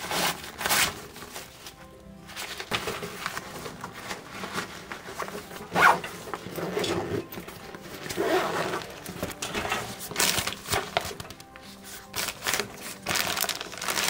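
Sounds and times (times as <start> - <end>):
backpack zipper pulled: 5.7 - 7.4, 8.0 - 8.9.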